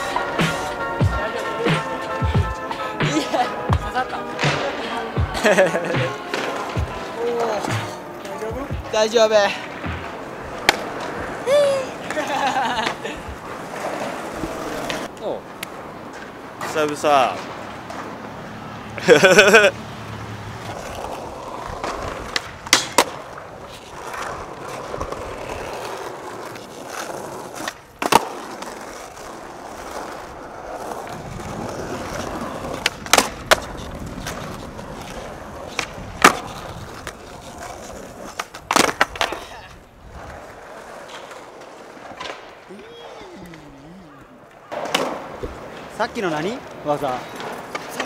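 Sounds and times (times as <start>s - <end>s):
skateboard wheels rolling on concrete: 0.0s - 48.0s
skateboard clacks popping and landing: 3.0s - 8.9s, 9.6s - 11.4s, 20.6s - 43.6s, 44.4s - 46.0s, 46.6s - 48.0s.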